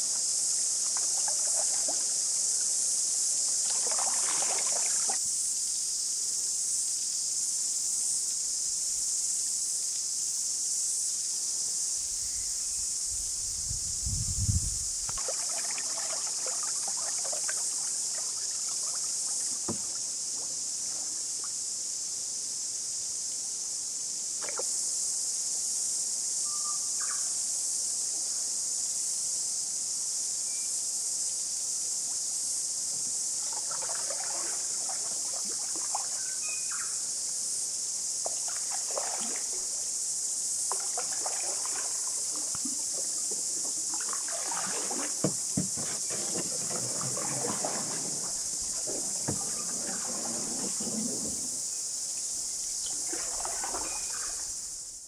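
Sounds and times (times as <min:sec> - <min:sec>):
canoe paddle strokes in water: 0:00.0 - 0:05.3, 0:14.8 - 0:21.5, 0:32.9 - 0:36.5, 0:38.2 - 0:54.8
high-pitched insect chorus: 0:00.0 - 0:55.0.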